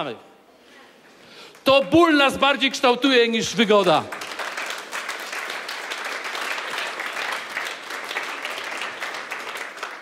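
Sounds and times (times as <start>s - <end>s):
crowd applauding: 3.8s - 10.0s.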